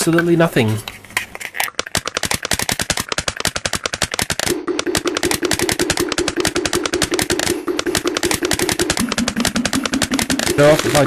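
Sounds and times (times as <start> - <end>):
rapid even clicking: 1.5 - 11.0
pulsing mid-pitched buzz: 4.1 - 11.0.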